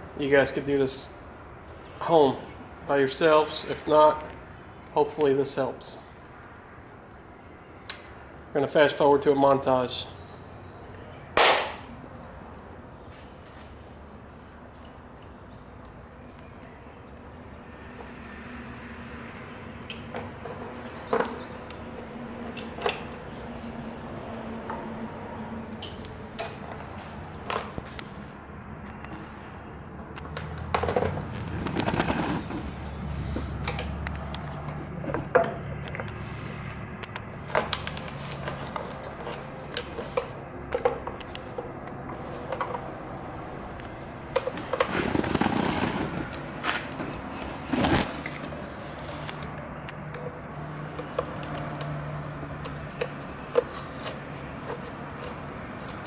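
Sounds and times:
hand tools and metal parts clicking: 0:25.8 - 0:26.8, 0:49.2 - 0:52.0, 0:52.6 - 0:56.0.

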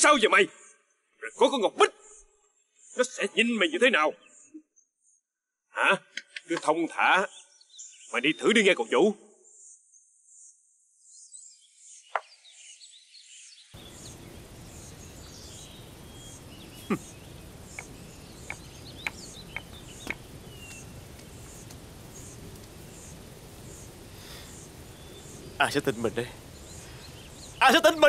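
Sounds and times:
insects chirping: 0:09.4 - 0:28.0
steady hiss: 0:13.8 - 0:28.0.

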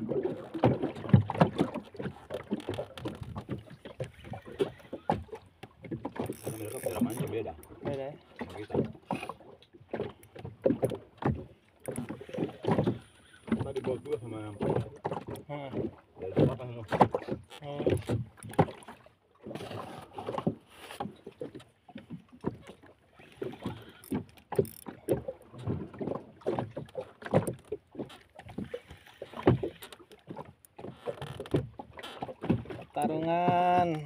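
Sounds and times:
fishing rod and reel knocking: 0:01.5 - 0:08.0, 0:10.2 - 0:15.5, 0:22.4 - 0:25.8.

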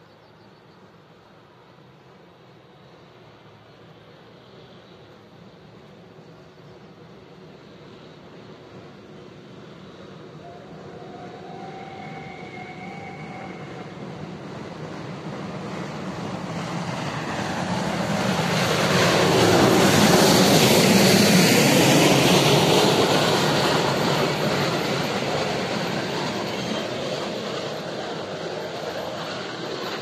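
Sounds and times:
steam train passing: 0:00.9 - 0:30.0
steam hissing: 0:09.1 - 0:30.0.

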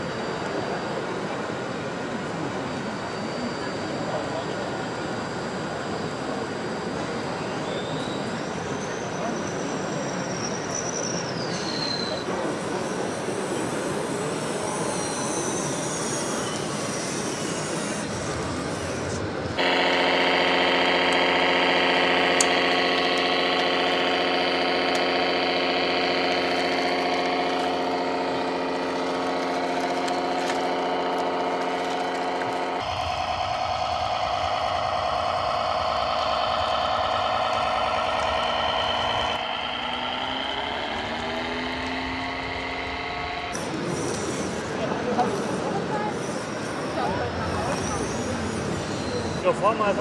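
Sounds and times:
model tractor engine drone: 0:00.0 - 0:11.4, 0:12.1 - 0:50.0
faint falling whine: 0:13.0 - 0:44.2
noisy din: 0:19.6 - 0:44.1.

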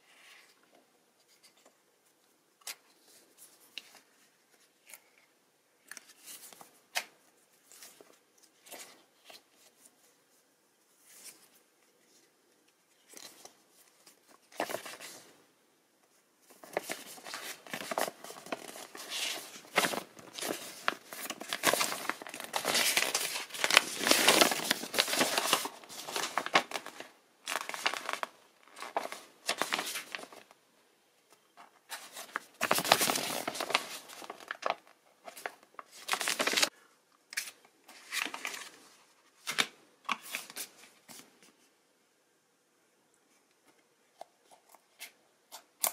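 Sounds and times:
paper leaflet crinkling: 0:12.9 - 0:15.3, 0:16.4 - 0:30.6, 0:31.6 - 0:36.7, 0:37.3 - 0:41.2
paper pages flicking: 0:16.6 - 0:30.4.

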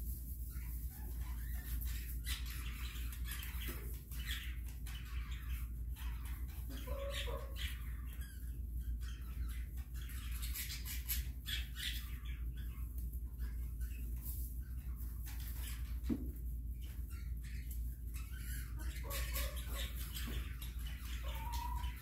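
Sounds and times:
chickens scratching in wood shavings: 0:00.0 - 0:08.7, 0:09.6 - 0:22.0
chicken clucking: 0:18.8 - 0:22.0.

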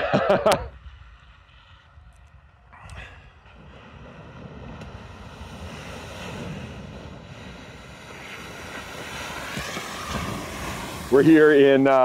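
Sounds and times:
water splashing and rushing: 0:03.5 - 0:12.0.

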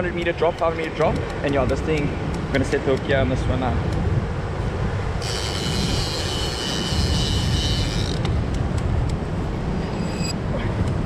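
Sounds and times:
wind on microphone: 0:00.0 - 0:11.0
fishing reel clicker buzzing: 0:05.2 - 0:08.3
fishing reel clicks: 0:05.2 - 0:08.3.

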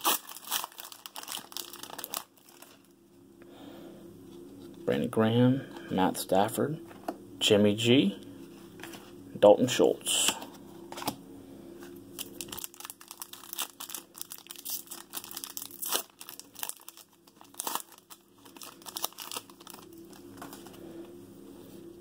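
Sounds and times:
foil wrapper tearing and crinkling: 0:00.0 - 0:02.9, 0:12.2 - 0:20.6.

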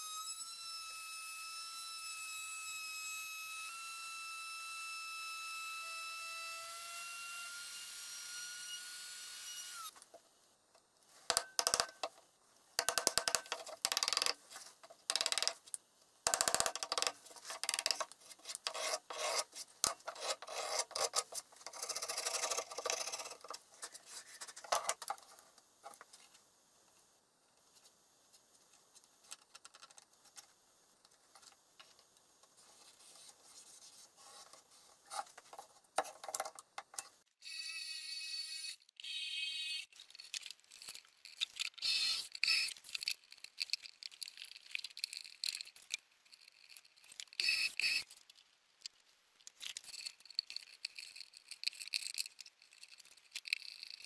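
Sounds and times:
chisel scraping chipboard: 0:16.6 - 0:23.5.

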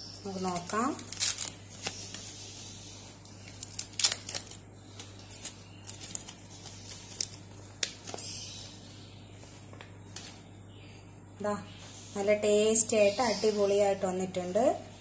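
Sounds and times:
leaves crinkling and tearing: 0:00.3 - 0:02.4, 0:03.2 - 0:08.2.

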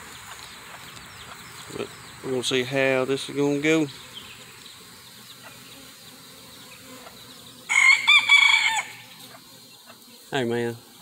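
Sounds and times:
honeybees humming: 0:00.0 - 0:11.0
rooster crowing: 0:07.7 - 0:09.2.

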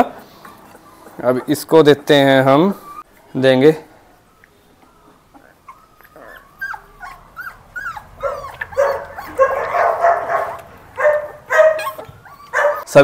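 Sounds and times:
puppy whining and yelping: 0:00.2 - 0:01.7, 0:02.7 - 0:03.1, 0:04.8 - 0:12.9.

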